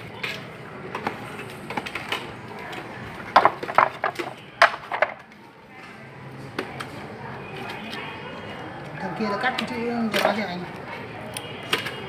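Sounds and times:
hollow letters clattering on concrete: 3.3 - 5.3.

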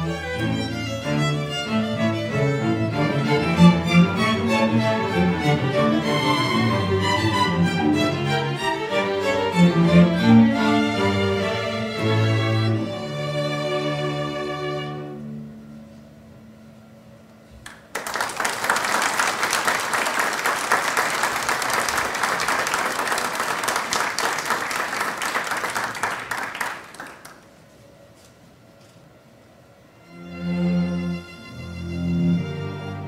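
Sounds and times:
string orchestra chord: 0.0 - 17.0, 29.9 - 33.0
audience clapping: 17.6 - 27.6.

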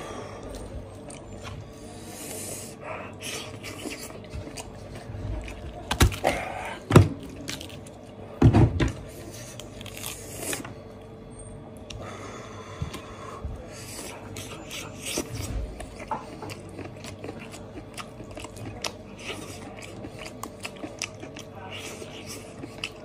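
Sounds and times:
wet tearing and squelching of meat: 3.3 - 8.1
bone cracking: 5.8 - 6.5.

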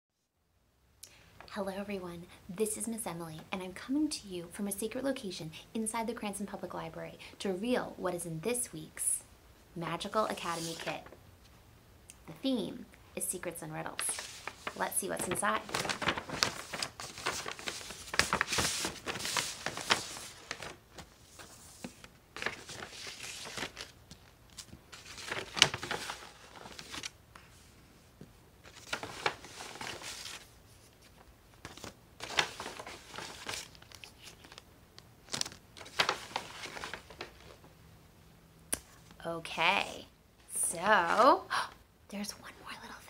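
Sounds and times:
paper rustling and crinkling: 10.3 - 11.2, 14.0 - 27.7, 28.6 - 37.7.

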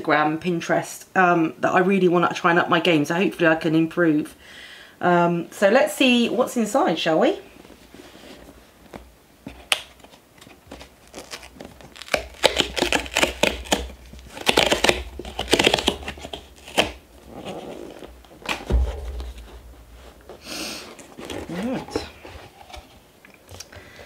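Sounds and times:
cardboard scraping and rustling: 7.7 - 23.2
dull thump: 18.4 - 20.4.

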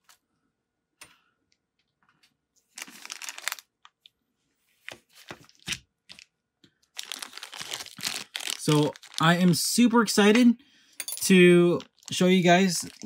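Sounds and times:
plastic packaging crinkling: 2.7 - 4.1, 4.9 - 10.4, 11.7 - 13.0.

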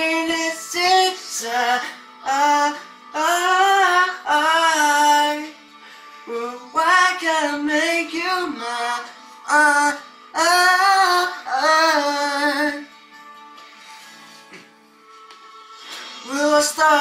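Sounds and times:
high voice singing wordless phrases: 16.2 - 17.0.

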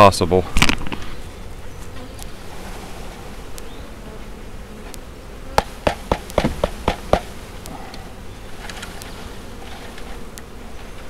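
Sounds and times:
bees buzzing: 0.0 - 11.0
knocks on wooden box: 5.6 - 7.3.

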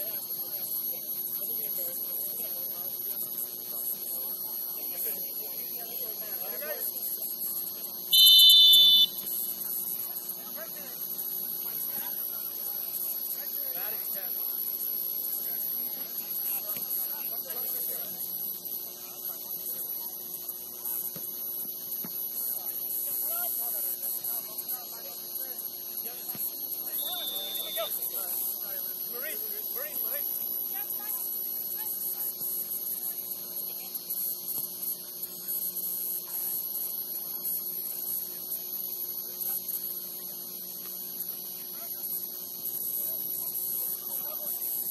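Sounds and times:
faint distant voices: 0.0 - 44.9
high-pitched hiss: 0.0 - 44.9
high-pitched whine: 26.0 - 30.2.

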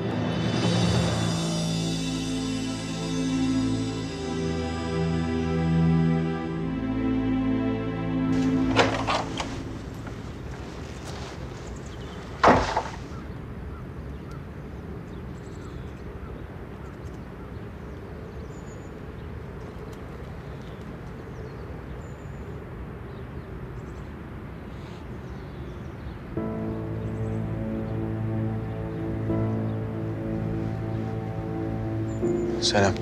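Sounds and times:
wet outdoor hiss: 0.0 - 13.2
wooden door banging shut: 8.4 - 9.6, 12.4 - 13.1.

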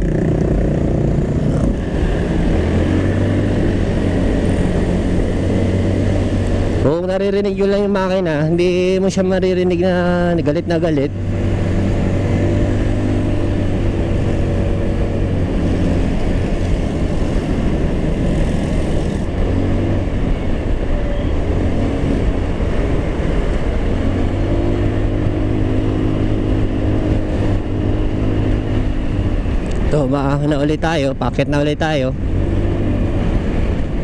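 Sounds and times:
scooter engine running: 0.0 - 7.0, 11.1 - 30.0
wind on microphone: 11.1 - 34.0.

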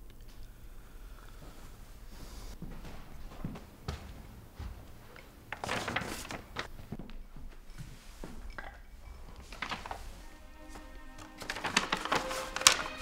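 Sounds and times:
paper envelope rustling: 5.4 - 6.9, 8.4 - 13.0.

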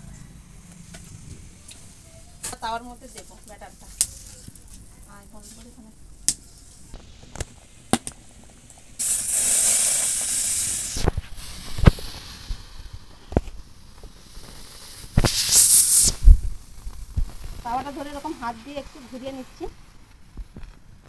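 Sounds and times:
quiet sizzle: 0.0 - 21.0
batter hissing on hot griddle: 0.6 - 21.0.

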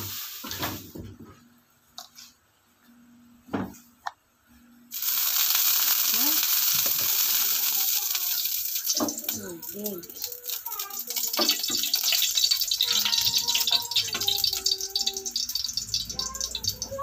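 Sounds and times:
water sizzling in a hot pan: 0.0 - 0.8, 4.9 - 17.0.

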